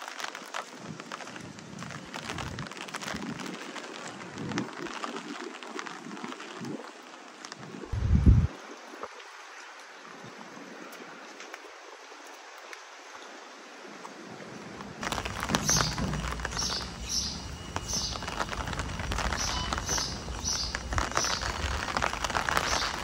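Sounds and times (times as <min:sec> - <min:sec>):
wind and rain: 0:00.0 - 0:23.0
low rumble: 0:08.0 - 0:08.5.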